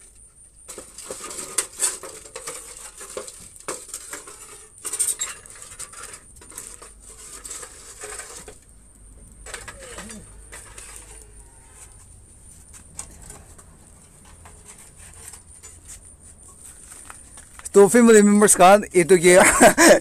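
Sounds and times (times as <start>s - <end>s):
metal tools clattering on metal pan: 0.7s - 8.5s.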